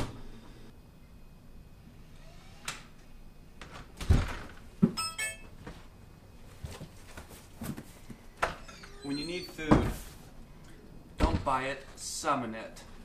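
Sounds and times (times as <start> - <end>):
high metallic jingle: 5.0 - 5.5.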